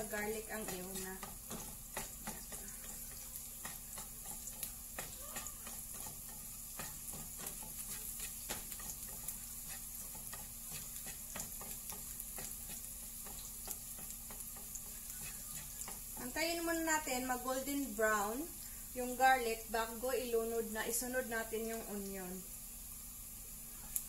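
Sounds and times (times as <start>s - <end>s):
spatula scraping and tapping pan: 0.0s - 17.4s
garlic sizzling in hot oil: 0.0s - 24.0s.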